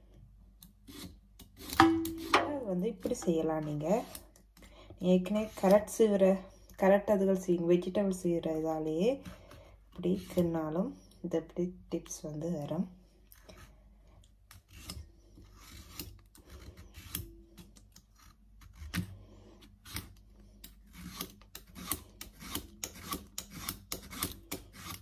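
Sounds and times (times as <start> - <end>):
root rasping on a slicer blade: 0.8 - 4.4, 5.1 - 6.1, 14.5 - 25.0.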